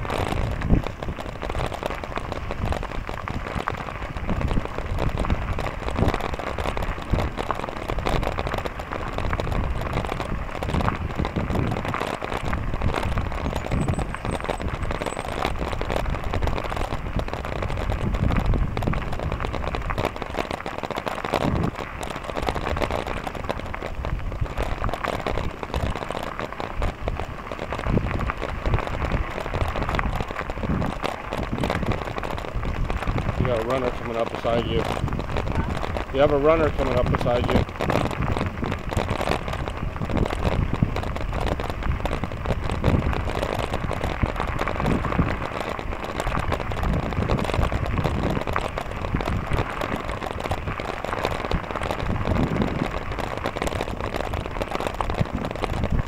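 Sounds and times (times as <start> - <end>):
bicycle tyres crunching gravel: 0.0 - 56.0
wind on microphone: 0.0 - 56.0.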